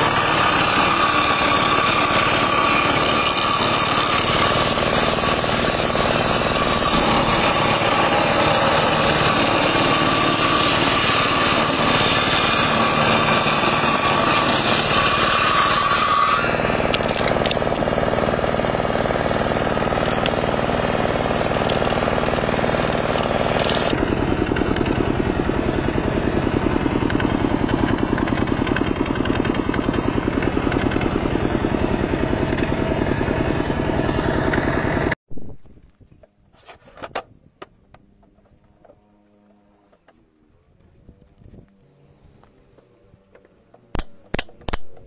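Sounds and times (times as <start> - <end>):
circular saw: 0.0 - 35.2
diesel engine running: 0.0 - 35.2.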